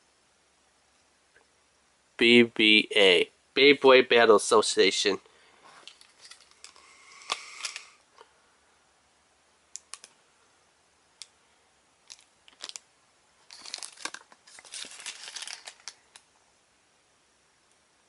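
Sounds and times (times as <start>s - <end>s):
paper rustling and crinkling: 13.4s - 16.2s.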